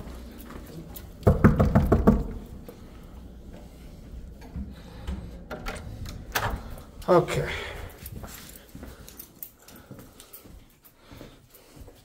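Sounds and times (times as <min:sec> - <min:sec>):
rapid knocks: 0:01.2 - 0:02.4.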